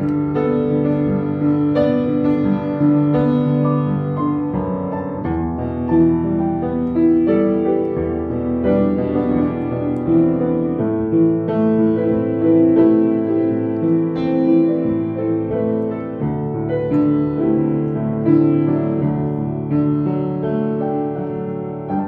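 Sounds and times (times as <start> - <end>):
solo piano: 0.0 - 22.0.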